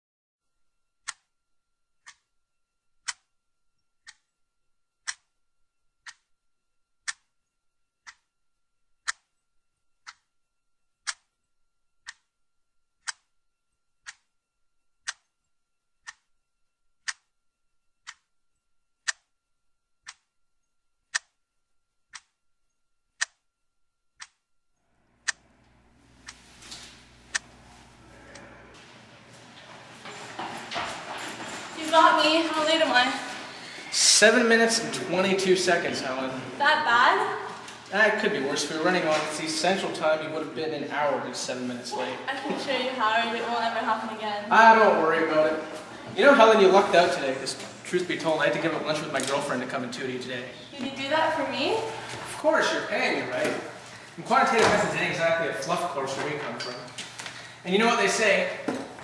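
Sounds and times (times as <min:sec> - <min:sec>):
room hum: 0:00.4 - 0:59.0
clock ticking: 0:01.0 - 0:01.3, 0:02.0 - 0:02.3, 0:03.0 - 0:03.4, 0:04.0 - 0:04.4, 0:05.0 - 0:05.4, 0:06.0 - 0:06.4, 0:07.0 - 0:08.4, 0:09.0 - 0:11.4, 0:12.0 - 0:12.3, 0:13.0 - 0:14.3, 0:14.9 - 0:18.4, 0:19.0 - 0:19.4, 0:20.0 - 0:21.4, 0:22.1 - 0:23.4, 0:24.2 - 0:24.4.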